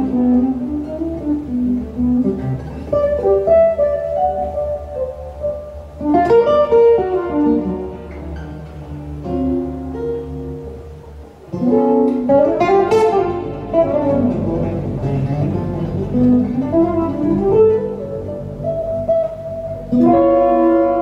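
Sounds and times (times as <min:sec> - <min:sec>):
classical guitar: 0:00.0 - 0:21.0
plucked double bass: 0:00.0 - 0:21.0.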